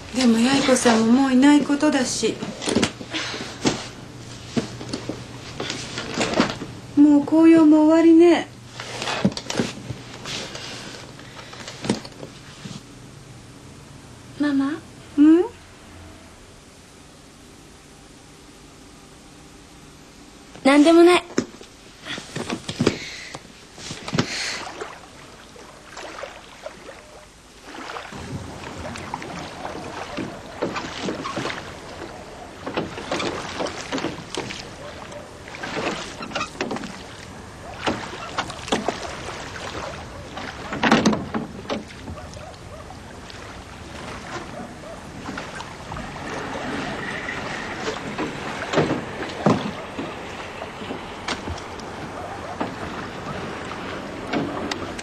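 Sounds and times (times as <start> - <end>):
boat knocks: 0.0 - 7.0, 28.1 - 55.0
water splashing around boat: 0.0 - 12.9, 21.4 - 55.0.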